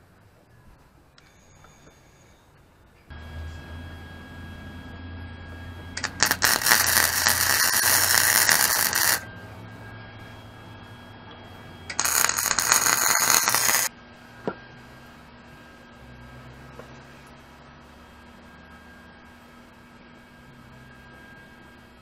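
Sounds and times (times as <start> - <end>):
steady low hum: 0.0 - 22.0
welding arc crackling and hissing: 6.0 - 9.3, 11.9 - 13.9.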